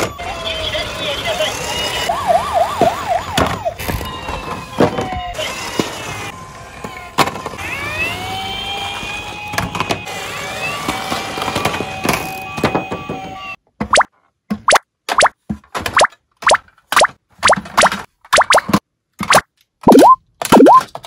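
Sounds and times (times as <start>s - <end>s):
toy police siren wailing: 0.0s - 13.6s
toy cars rolling on wooden board: 2.8s - 13.5s.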